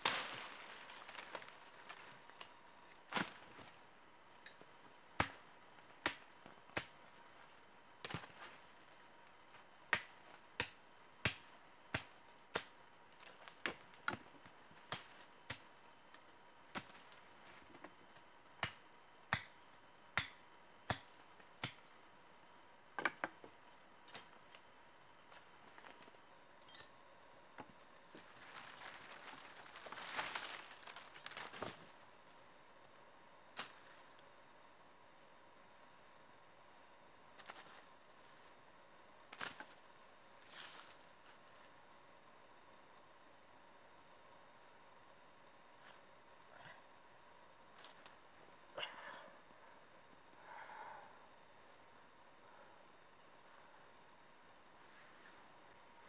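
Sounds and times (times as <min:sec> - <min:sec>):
rustling in dry leaves: 0:00.0 - 0:02.5, 0:03.1 - 0:03.8, 0:28.1 - 0:32.1, 0:33.6 - 0:34.1, 0:37.4 - 0:38.6, 0:39.3 - 0:39.8, 0:40.4 - 0:41.7.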